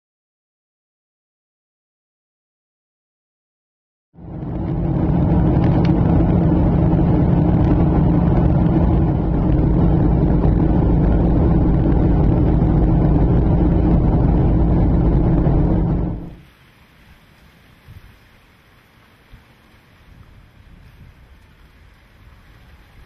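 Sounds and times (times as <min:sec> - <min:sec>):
aircraft engines droning: 0:04.2 - 0:16.4
constant low hums: 0:04.2 - 0:16.4
rushing air: 0:04.2 - 0:16.6.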